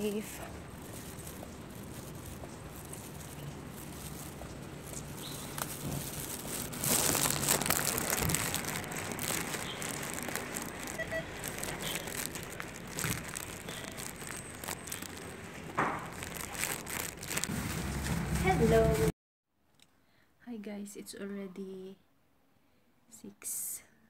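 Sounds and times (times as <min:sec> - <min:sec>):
plastic bag rustling: 0:00.0 - 0:19.1.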